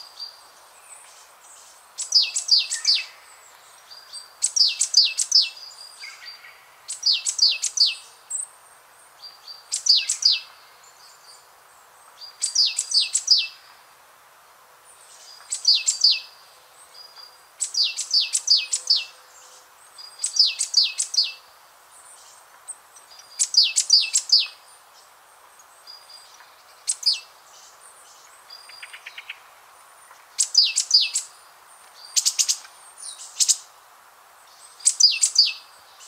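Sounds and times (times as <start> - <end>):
songbird singing: 0.0 - 14.0, 14.6 - 36.0
faint steady hiss: 0.0 - 36.0
bird trill: 17.6 - 19.2, 30.4 - 31.3, 34.8 - 35.7.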